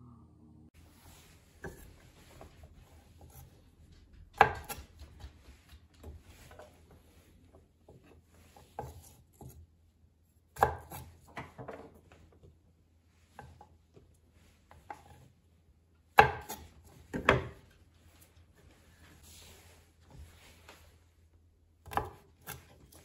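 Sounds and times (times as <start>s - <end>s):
knife striking cutting board: 4.4s - 4.9s.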